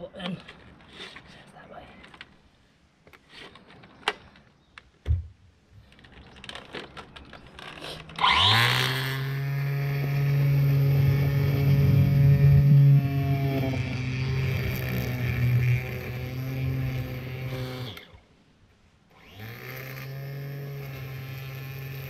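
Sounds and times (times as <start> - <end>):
electric motor whine: 8.2 - 18.2, 19.1 - 22.0.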